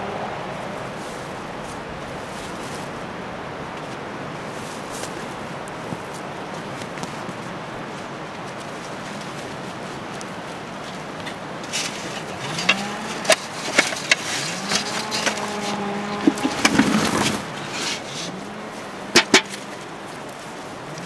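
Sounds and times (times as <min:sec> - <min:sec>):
potatoes knocking together: 0:11.9 - 0:17.7.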